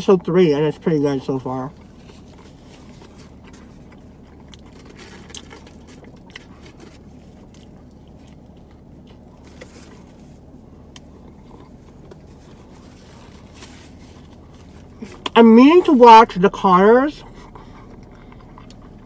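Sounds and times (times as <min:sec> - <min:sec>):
low hum inside car: 0:00.0 - 0:19.0
person chewing: 0:01.3 - 0:16.0, 0:17.2 - 0:19.0.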